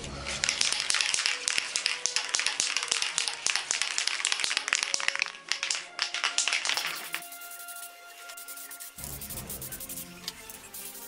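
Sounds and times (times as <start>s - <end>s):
spray can rattling: 0.4s - 11.0s
light hiss: 6.7s - 11.0s.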